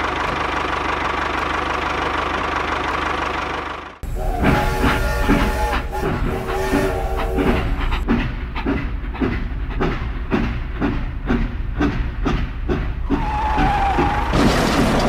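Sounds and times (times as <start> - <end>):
toy train chugging: 0.1 - 9.4.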